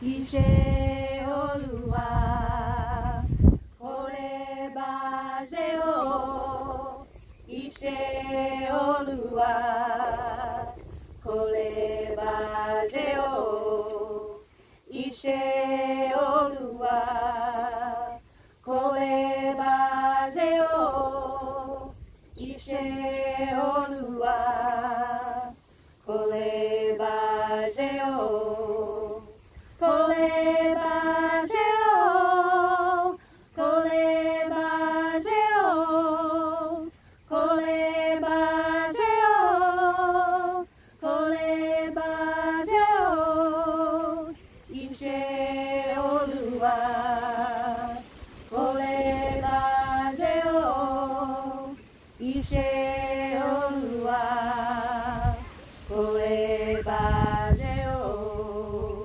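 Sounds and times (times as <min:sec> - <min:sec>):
women singing a cappella chant: 0:00.0 - 0:59.0
singer breathing: 0:14.5 - 0:14.9, 0:33.2 - 0:33.5.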